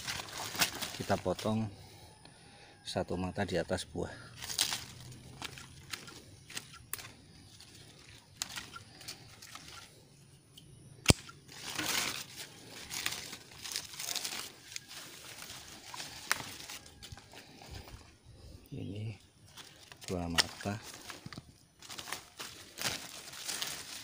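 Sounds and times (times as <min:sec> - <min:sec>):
leaves rustling: 0:00.0 - 0:02.1, 0:04.0 - 0:10.1, 0:11.1 - 0:24.0
small clicks of vine handling: 0:04.4 - 0:09.9, 0:10.5 - 0:18.0, 0:19.5 - 0:24.0
pruning shears snip: 0:04.5 - 0:07.1, 0:10.6 - 0:12.1.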